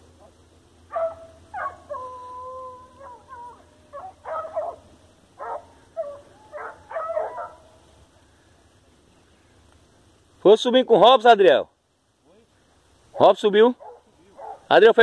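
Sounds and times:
dog howling: 0:00.9 - 0:04.8, 0:05.4 - 0:07.6
dog barking and yelping: 0:00.9 - 0:07.7, 0:13.2 - 0:14.7.

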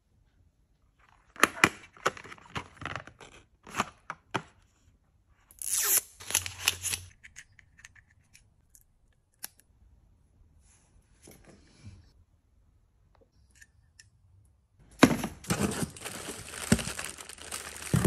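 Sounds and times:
paper box taps and crinkles: 0:15.0 - 0:18.0.

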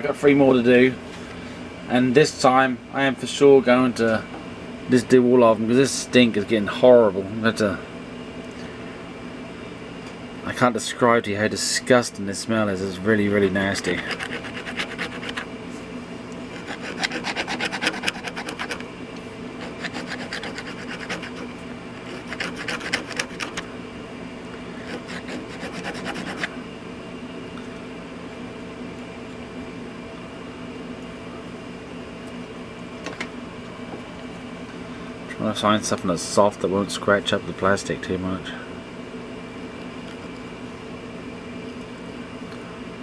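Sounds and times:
steady low hum: 0:00.0 - 0:43.0
fingernail rasping on plastic: 0:14.0 - 0:15.5, 0:16.5 - 0:18.8, 0:19.6 - 0:23.6, 0:24.8 - 0:26.5.

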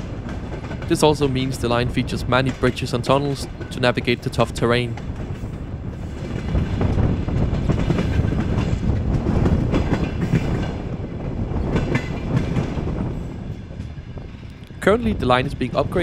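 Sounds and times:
wheels clicking over rail joints: 0:00.0 - 0:10.9, 0:11.6 - 0:12.9
train wheels rumbling on track: 0:00.0 - 0:16.0.

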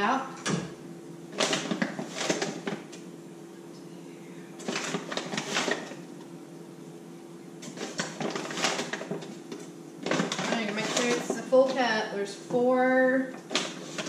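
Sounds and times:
steady low hum: 0:00.0 - 0:14.0
paper bag rustling: 0:04.6 - 0:05.9, 0:07.6 - 0:09.4.

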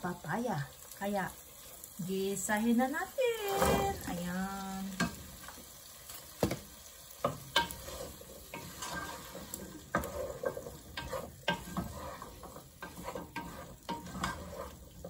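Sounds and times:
soft sizzle: 0:00.0 - 0:15.0
spatula scraping a steel pot: 0:07.2 - 0:15.0.

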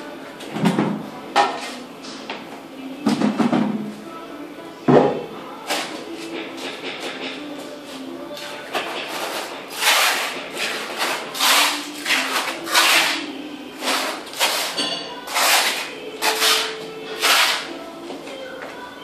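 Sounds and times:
trowel scraping adhesive on concrete: 0:09.1 - 0:17.7.

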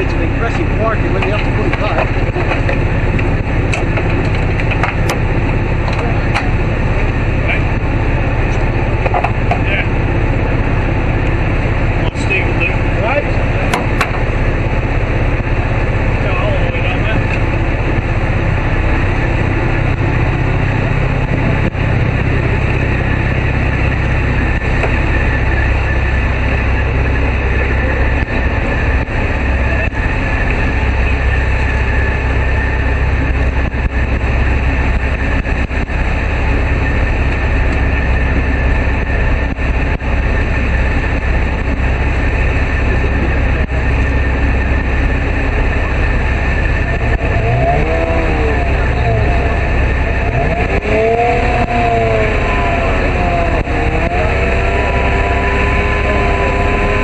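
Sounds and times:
boat diesel engines running: 0:00.0 - 0:57.0
water wash: 0:00.0 - 0:57.0
rising and falling tone: 0:45.9 - 0:57.0.

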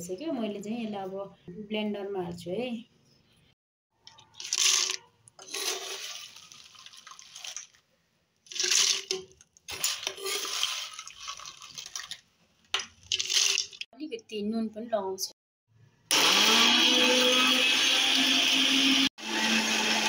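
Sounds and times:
fried chillies poured from pan: 0:04.1 - 0:07.8, 0:08.5 - 0:12.2, 0:12.9 - 0:13.8.

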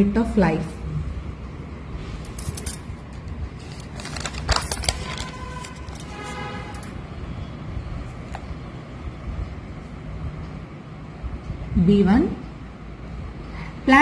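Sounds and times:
steady low rumble: 0:00.8 - 0:13.6
paper page rustling: 0:03.4 - 0:06.9.

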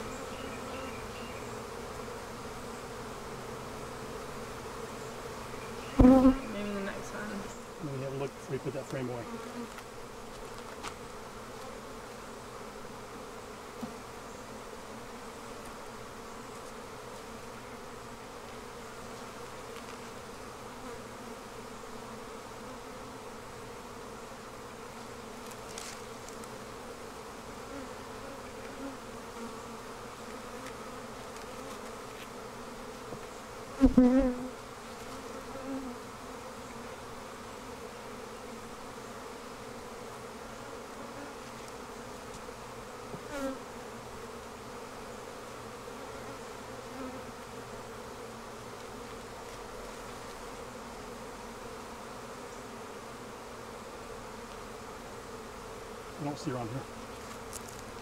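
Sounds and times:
honeybees buzzing: 0:00.0 - 0:58.0.

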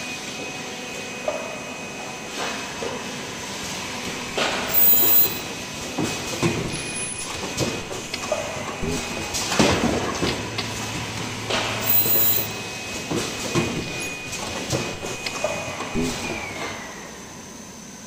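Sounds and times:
machine hum: 0:03.9 - 0:16.6
very high whine: 0:04.0 - 0:17.4
hissing bursts: 0:04.2 - 0:05.5, 0:11.7 - 0:12.5
machine clacks: 0:06.4 - 0:12.5, 0:13.2 - 0:16.7.

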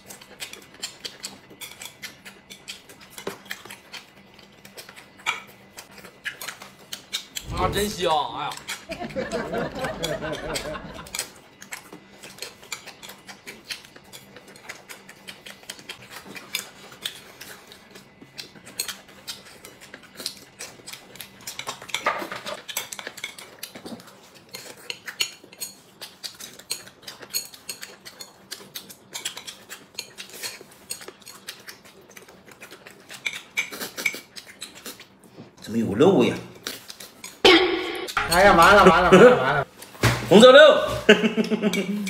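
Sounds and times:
chewing: 0:00.0 - 0:07.6, 0:08.5 - 0:37.4.

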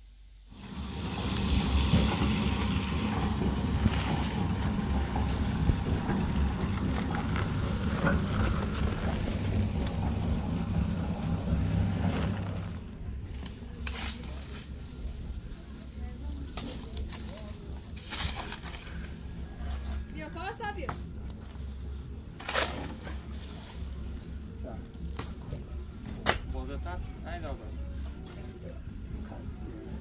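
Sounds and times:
vehicle engine rumbling: 0:00.5 - 0:15.8.

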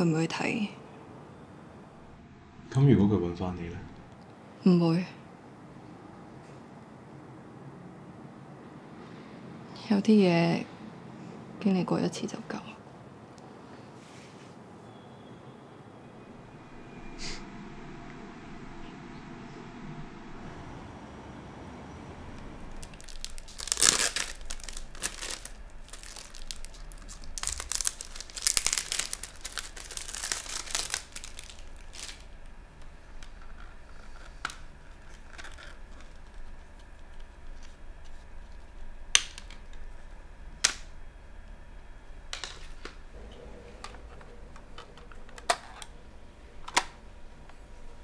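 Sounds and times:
cellophane tearing and crinkling: 0:22.7 - 0:32.6, 0:33.2 - 0:37.8.

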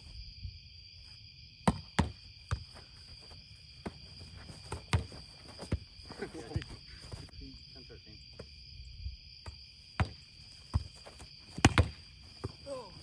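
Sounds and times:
crickets chirping: 0:00.0 - 0:13.0
ball slaps and thuds on board: 0:01.7 - 0:02.6, 0:10.0 - 0:10.8, 0:11.6 - 0:12.0.

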